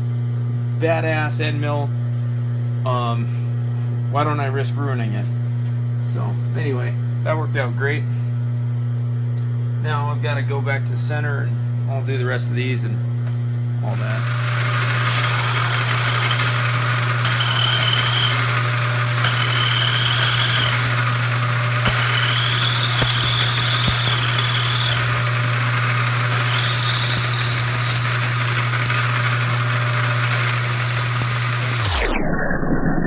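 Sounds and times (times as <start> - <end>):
motor hum: 12.9 - 32.3
milling machine spindle running: 13.8 - 31.9
high squeal from cutting metal: 17.2 - 18.6, 19.2 - 21.0.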